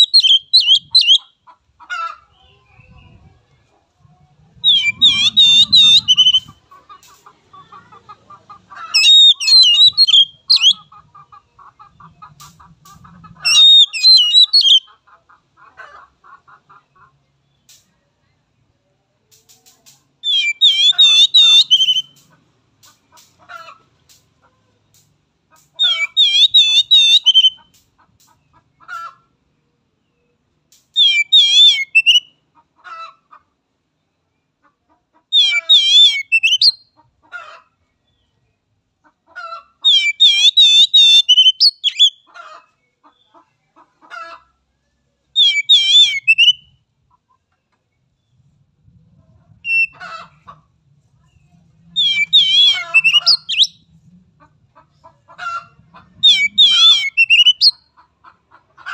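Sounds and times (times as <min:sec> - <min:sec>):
bird singing trilled phrases: 0:00.0 - 0:01.4, 0:04.6 - 0:06.6, 0:08.9 - 0:10.8, 0:13.5 - 0:14.9, 0:20.2 - 0:22.2, 0:25.8 - 0:27.7, 0:31.0 - 0:32.4, 0:35.4 - 0:36.9, 0:39.9 - 0:42.3, 0:45.4 - 0:46.8, 0:49.7 - 0:50.0, 0:51.9 - 0:53.9, 0:56.2 - 0:57.8.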